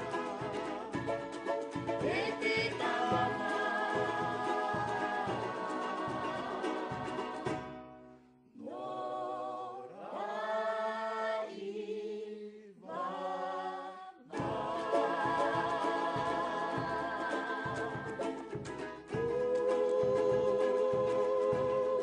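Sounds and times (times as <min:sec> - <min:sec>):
drum: 0:00.0 - 0:07.8, 0:14.3 - 0:22.0
vocal group singing in harmony: 0:00.0 - 0:07.8, 0:08.6 - 0:22.0
strummed strings: 0:00.0 - 0:08.2, 0:14.3 - 0:22.0.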